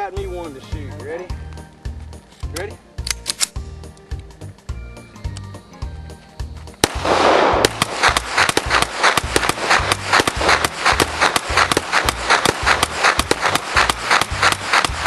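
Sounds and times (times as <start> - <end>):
pistol shots: 6.8 - 15.0.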